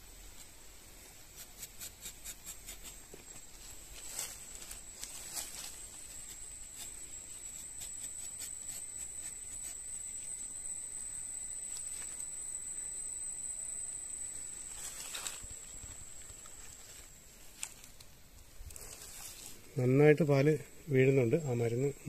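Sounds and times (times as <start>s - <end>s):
faint hiss: 0.0s - 22.0s
insect drone: 0.0s - 22.0s
knife scraping tree bark: 1.3s - 10.5s.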